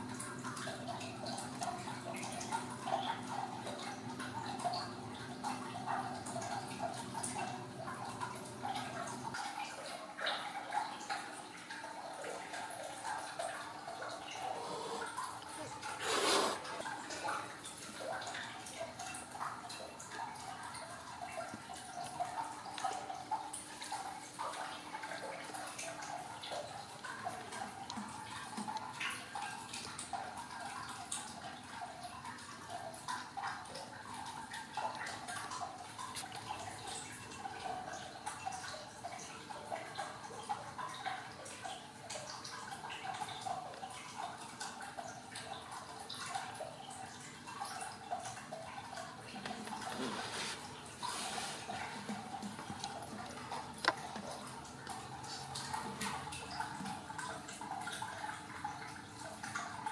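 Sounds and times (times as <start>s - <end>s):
kittens suckling: 14.3s - 17.0s.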